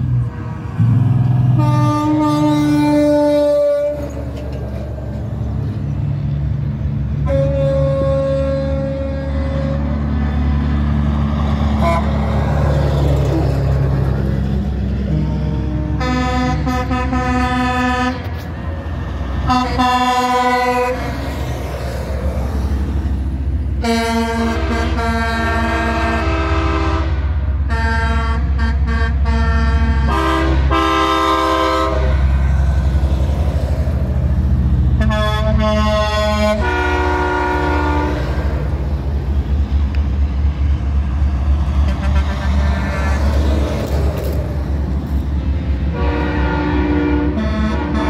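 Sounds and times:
diesel engine rumble: 0.0 - 48.0
truck air horn blasts: 1.5 - 4.2, 7.2 - 10.3, 11.7 - 12.4, 15.0 - 18.5, 19.4 - 21.2, 23.8 - 32.4, 34.9 - 38.7, 41.8 - 43.2, 45.9 - 48.0.

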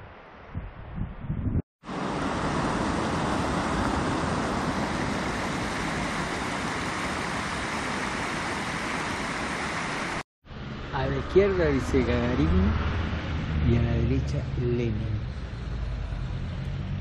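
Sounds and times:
vehicle rushing on road: 10.5 - 17.0.

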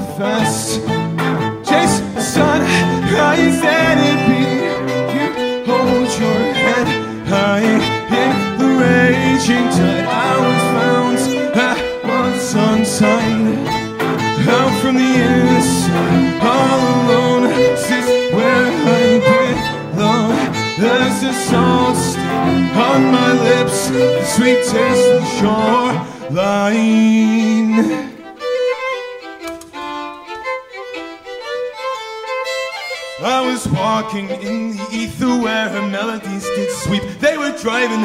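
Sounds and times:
violins and cello playing: 0.0 - 38.0.

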